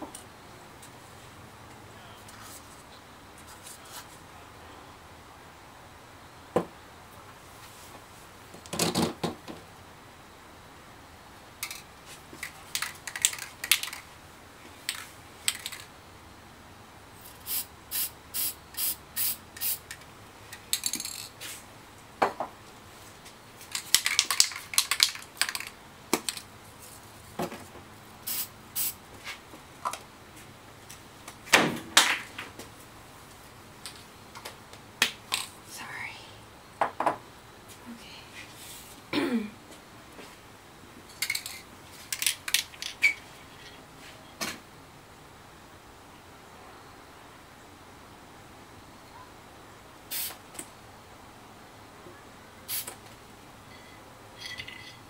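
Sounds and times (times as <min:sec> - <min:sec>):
spray can hissing puffs: 0:17.2 - 0:20.0, 0:28.2 - 0:29.0, 0:50.1 - 0:50.4, 0:52.7 - 0:53.0.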